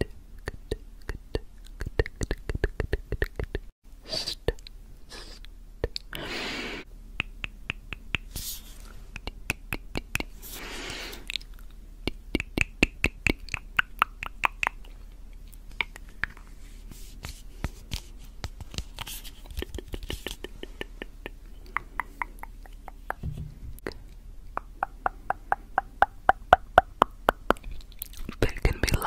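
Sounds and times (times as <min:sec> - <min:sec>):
tongue clicks: 0:00.0 - 0:03.6, 0:07.2 - 0:08.4, 0:11.2 - 0:16.4, 0:19.6 - 0:23.2, 0:23.8 - 0:29.0
wet mouth sounds: 0:00.4 - 0:04.7, 0:07.2 - 0:16.5, 0:19.4 - 0:29.0.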